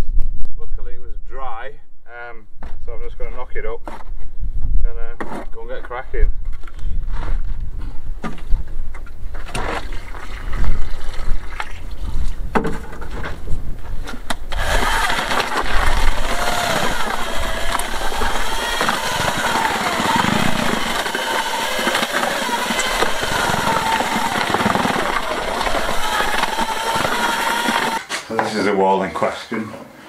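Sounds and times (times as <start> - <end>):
water pouring into bucket: 9.6 - 12.0
electric drill mixing: 14.5 - 28.0.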